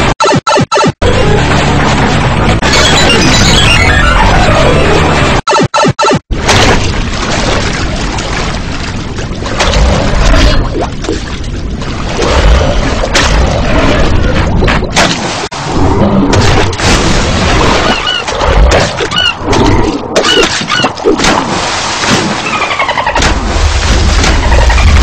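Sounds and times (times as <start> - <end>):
rumbling and crashing booms: 1.1 - 4.2, 23.2 - 25.0.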